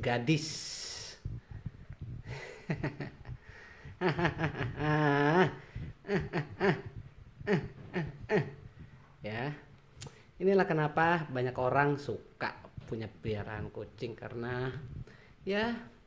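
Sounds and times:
man making playful sounds: 0:00.0 - 0:16.0.

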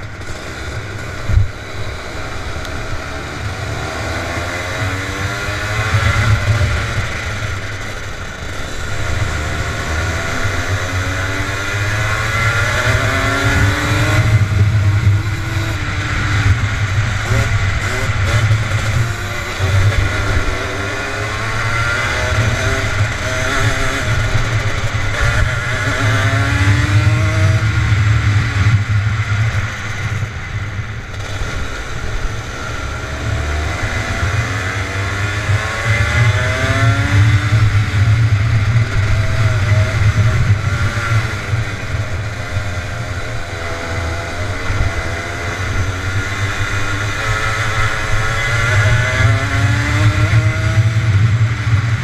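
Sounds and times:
kart engine revving: 0:00.0 - 0:52.0.

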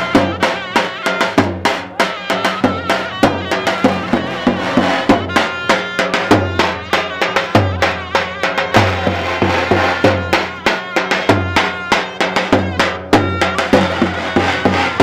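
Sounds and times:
shrill reed pipe melody: 0:00.0 - 0:15.0
bass drum beating: 0:02.6 - 0:06.9.

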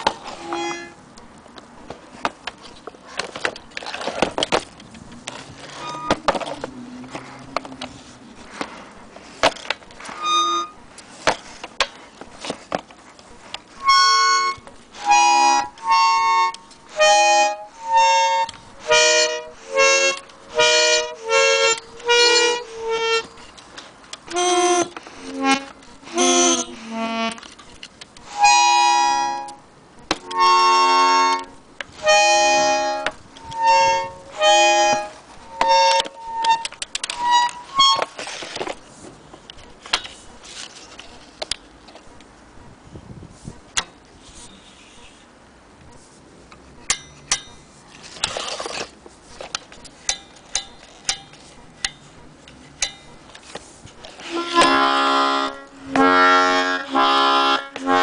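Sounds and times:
accordion notes and chords: 0:00.0 - 0:01.0, 0:05.7 - 0:06.6, 0:10.0 - 0:10.9, 0:13.8 - 0:27.6, 0:28.2 - 0:38.2, 0:54.1 - 0:58.0
faint handling noise: 0:00.0 - 0:13.9, 0:34.9 - 0:42.4, 0:43.0 - 0:54.5.

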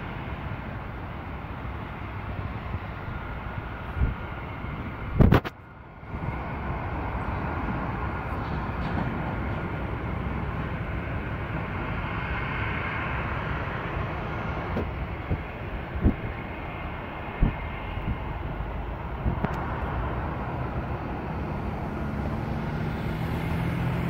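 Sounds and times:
jet engines whining: 0:00.0 - 0:24.0.

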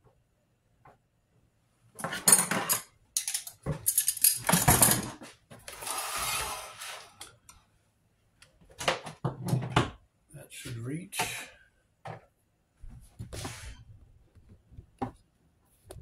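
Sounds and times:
scraping slide on countertop: 0:05.7 - 0:07.3, 0:13.3 - 0:13.8.

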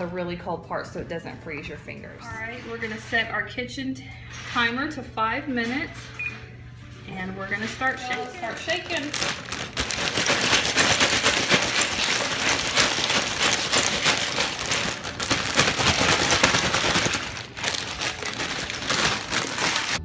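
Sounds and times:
plastic bag crinkling: 0:07.5 - 0:20.0
ice rattling in shaken bag: 0:07.6 - 0:20.0.

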